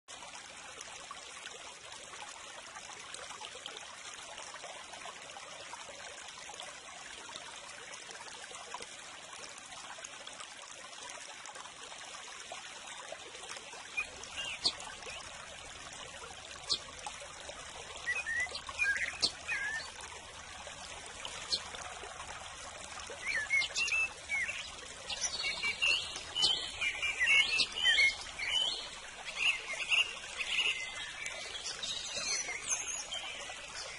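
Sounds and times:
water trickling: 0.1s - 33.9s
songbirds chirping: 13.8s - 33.9s.

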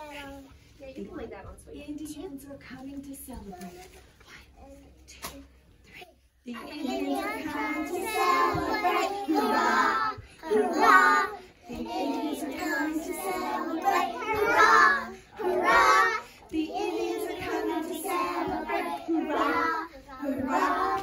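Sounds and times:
children singing: 6.8s - 21.0s.

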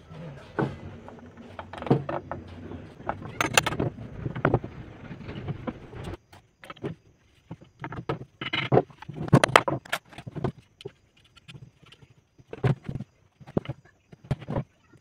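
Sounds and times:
steady rumbling noise: 0.0s - 6.3s
wooden chair parts clattering: 0.0s - 14.7s.

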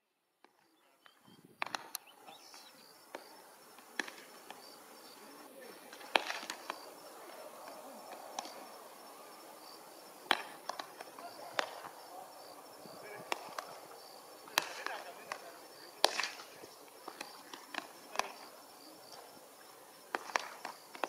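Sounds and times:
faint distant voices: 0.5s - 21.0s
baseballs smacking into gloves: 1.6s - 2.0s, 3.1s - 4.6s, 5.9s - 9.2s, 9.8s - 19.3s, 20.1s - 21.0s.

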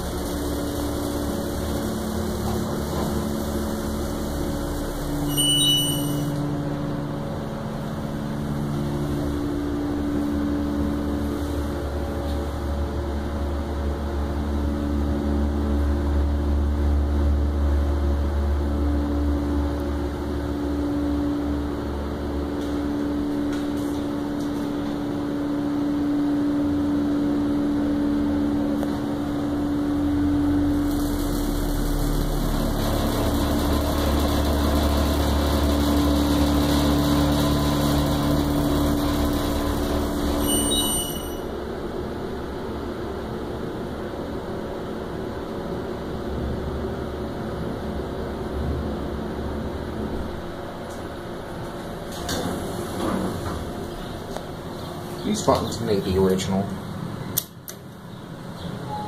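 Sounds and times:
hydraulic elevator drive drone: 28.2s - 41.7s.

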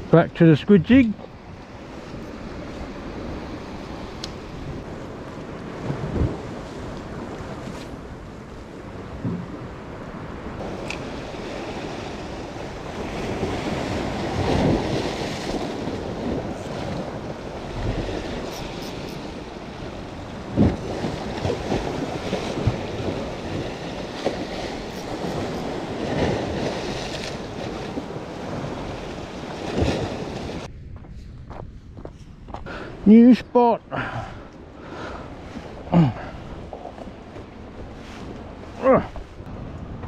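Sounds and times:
waves washing over rocks: 0.0s - 30.7s
wind buffeting microphone: 1.1s - 33.0s, 33.9s - 40.0s.

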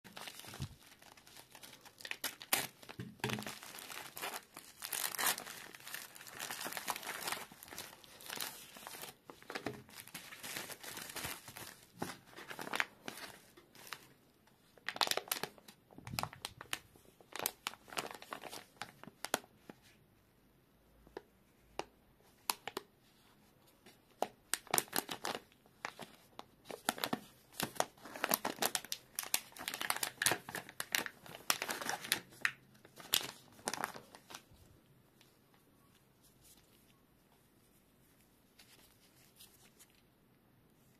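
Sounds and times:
plastic packaging crinkling and tearing: 0.1s - 19.4s, 24.2s - 34.7s.

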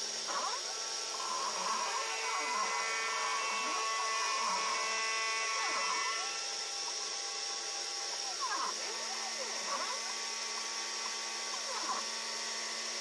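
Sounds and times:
spindle motor whine: 0.0s - 13.0s
stepper motors humming: 0.0s - 13.0s.

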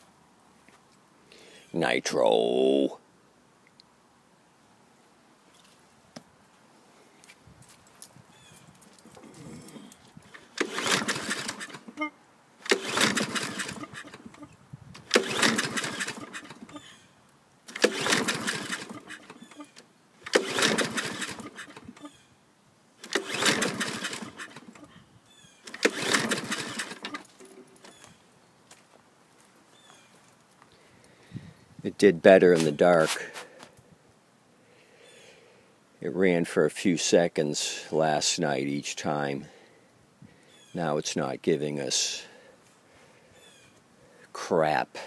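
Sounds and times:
lawn mower engine pull-start cranking: 9.0s - 16.9s, 17.6s - 22.2s, 23.0s - 25.0s, 25.6s - 28.1s.

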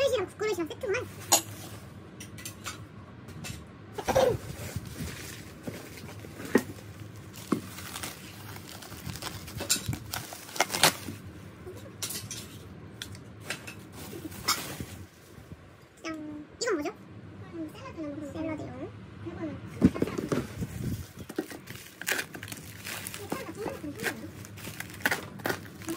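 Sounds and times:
bubble wrap crinkling: 4.4s - 11.3s, 20.6s - 25.9s.

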